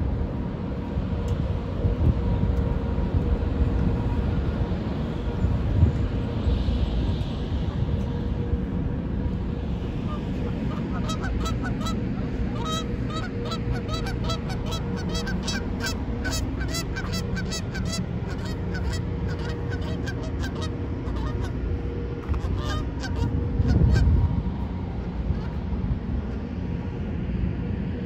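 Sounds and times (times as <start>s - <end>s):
low rumble: 0.0s - 28.0s
geese honking: 10.0s - 24.3s.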